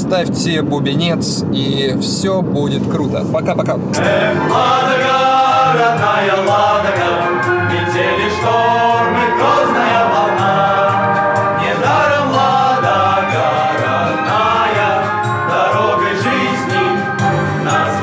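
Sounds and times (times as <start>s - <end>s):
group singing in harmony: 4.0s - 18.0s
musical accompaniment: 4.0s - 18.0s.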